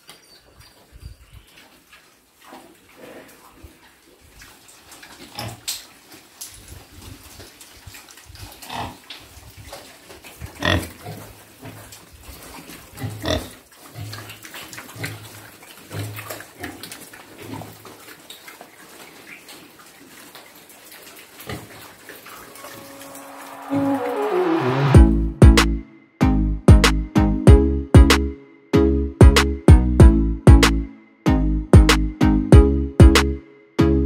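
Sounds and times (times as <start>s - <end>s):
pigs grunting: 1.8s - 5.9s, 7.1s - 23.0s.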